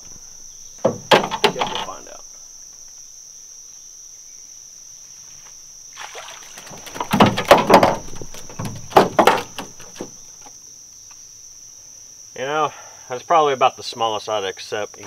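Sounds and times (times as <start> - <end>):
insects droning: 0.0 - 15.0
fish thrashing and splashing: 6.0 - 8.7.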